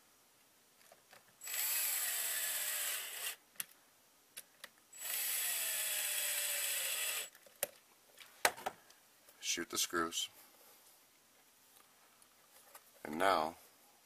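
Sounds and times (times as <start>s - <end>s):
cordless drill driving screws: 1.4s - 3.4s, 5.0s - 7.3s.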